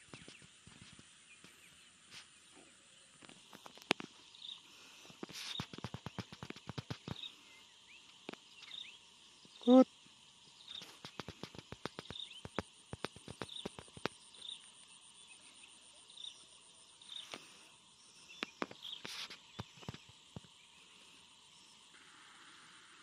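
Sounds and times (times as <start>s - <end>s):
sharp clicks and crackles: 3.2s - 4.2s, 5.1s - 7.3s, 10.7s - 14.3s, 18.3s - 20.6s.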